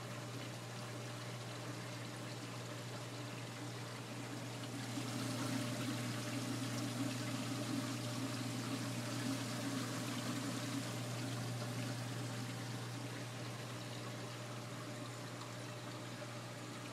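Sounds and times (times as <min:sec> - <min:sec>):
low pump hum: 0:00.0 - 0:16.9
water and bubbles rushing: 0:03.5 - 0:16.9.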